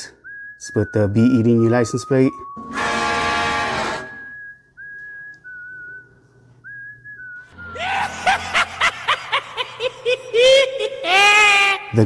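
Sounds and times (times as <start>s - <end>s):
whistled tune: 0.0s - 2.9s, 3.8s - 8.7s
high-pitched cackling laugh: 7.7s - 11.9s.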